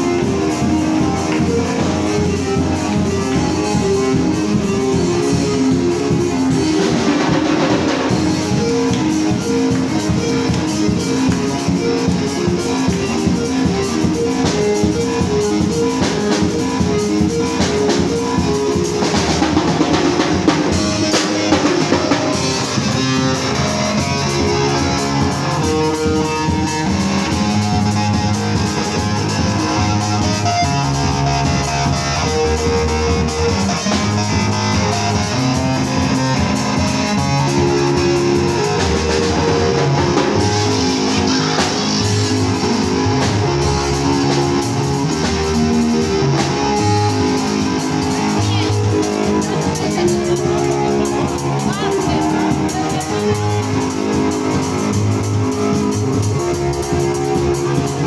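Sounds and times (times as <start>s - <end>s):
bass line: 0.0s - 58.0s
drum kit steady beat: 0.0s - 58.0s
melodic accompaniment: 0.0s - 58.0s.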